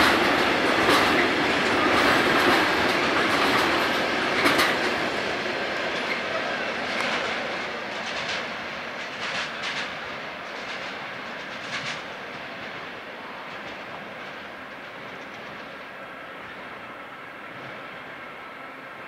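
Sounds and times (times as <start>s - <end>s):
wheels clicking over rail joints: 0.0s - 5.2s, 6.9s - 12.8s
train wagons rolling on tracks: 0.0s - 19.0s.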